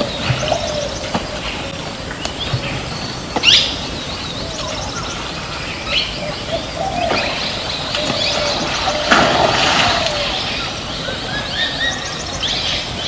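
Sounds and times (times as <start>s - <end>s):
forest birds chirping: 0.0s - 13.0s
steady background hiss: 0.0s - 13.0s.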